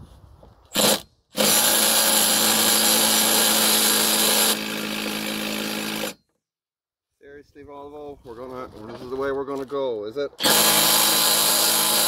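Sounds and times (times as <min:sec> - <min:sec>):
cordless power tool running: 0:00.8 - 0:06.2, 0:10.4 - 0:12.0.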